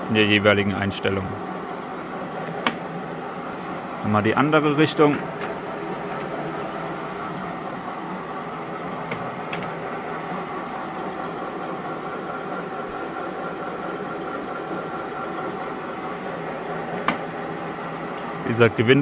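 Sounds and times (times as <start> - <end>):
lathe mechanical hum: 0.0 - 19.0.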